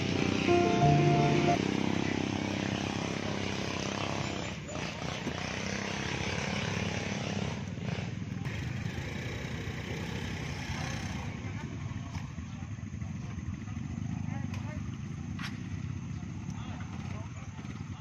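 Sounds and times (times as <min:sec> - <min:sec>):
motorcycle engines running: 0:00.0 - 0:18.0.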